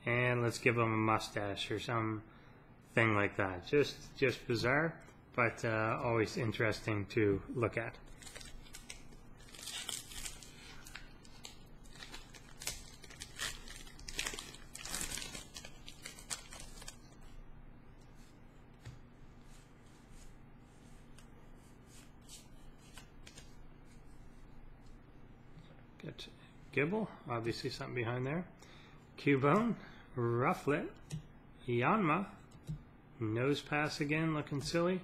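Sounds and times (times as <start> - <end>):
foil wrapper tearing and crinkling: 8.2 - 17.0
cards being handled: 18.1 - 24.1.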